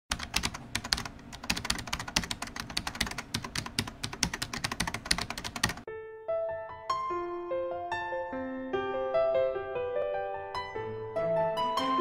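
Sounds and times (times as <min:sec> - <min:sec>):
rapid keyboard typing: 0:00.1 - 0:05.9.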